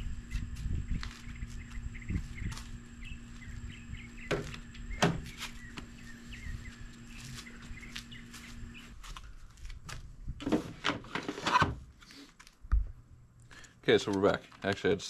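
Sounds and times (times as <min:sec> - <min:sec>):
faint steady hum: 0:00.0 - 0:15.0
small birds chirping: 0:00.3 - 0:09.2.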